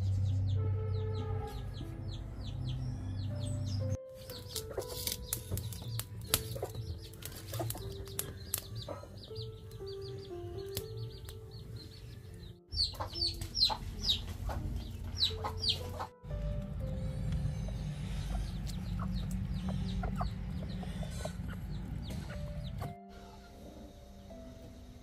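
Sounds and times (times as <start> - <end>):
soft background music: 0.0 - 25.0
chickens clucking: 3.8 - 16.2, 17.3 - 23.8
steady low rumble: 12.7 - 23.0.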